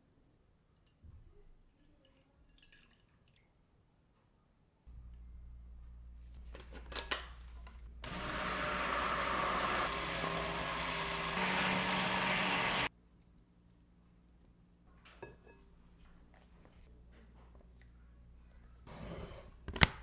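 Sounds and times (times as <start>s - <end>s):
low steady hum: 4.9s - 6.7s
stick blender churning liquid: 8.0s - 12.9s.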